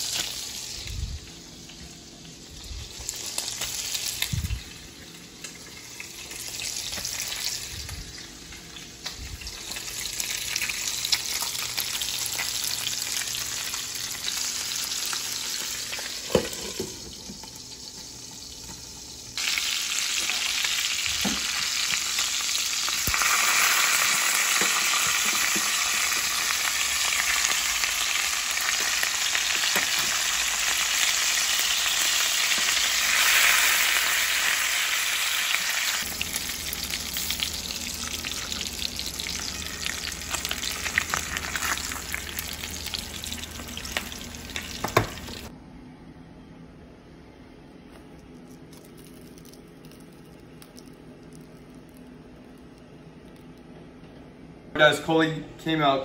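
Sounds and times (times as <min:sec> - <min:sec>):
fish sizzling in a pan: 0:00.0 - 0:00.8, 0:02.5 - 0:08.3, 0:09.4 - 0:45.5.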